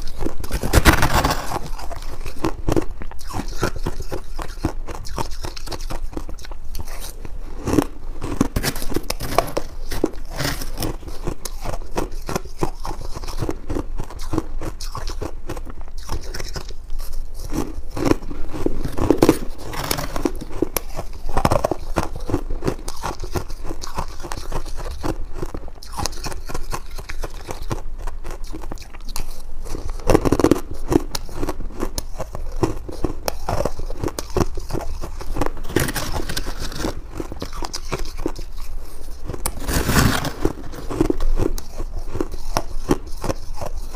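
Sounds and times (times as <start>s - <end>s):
crunchy food being chewed: 0.0s - 43.9s.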